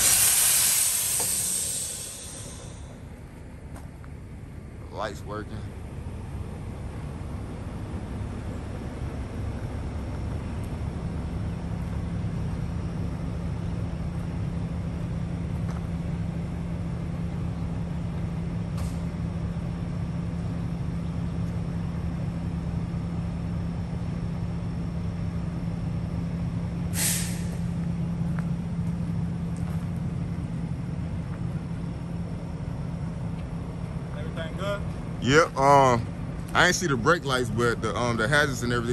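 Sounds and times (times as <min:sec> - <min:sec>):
air brake hiss: 0:00.0 - 0:03.1, 0:26.9 - 0:27.7
diesel truck engine idling: 0:00.0 - 0:38.9.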